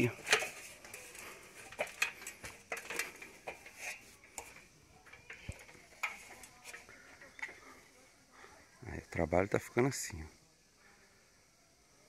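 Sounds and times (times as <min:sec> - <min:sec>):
metal ladder clinking and knocking: 0:00.0 - 0:07.7.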